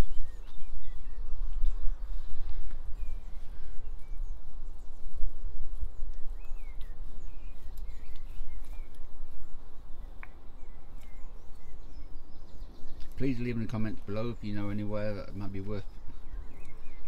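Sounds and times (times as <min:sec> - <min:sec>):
birds chirping: 0:00.0 - 0:17.0
wind rumbling on microphone: 0:00.0 - 0:17.0.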